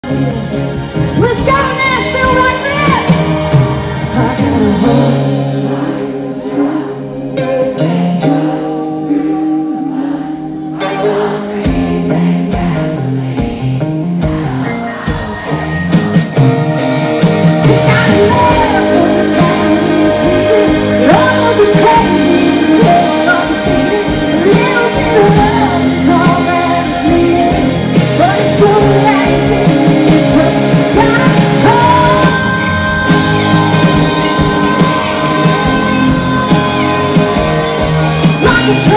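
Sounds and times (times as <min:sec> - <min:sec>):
country-rock band playing: 0:00.0 - 0:38.9
woman singing: 0:01.2 - 0:07.0, 0:17.6 - 0:38.9.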